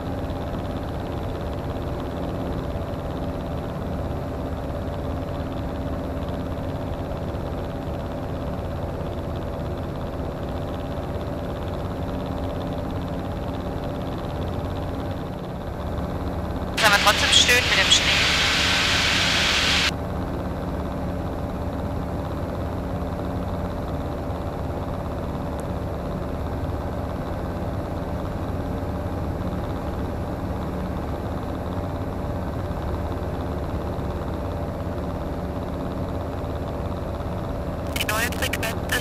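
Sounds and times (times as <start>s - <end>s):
aircraft engine and propeller droning: 0.0s - 37.8s
loud hiss: 16.8s - 19.9s.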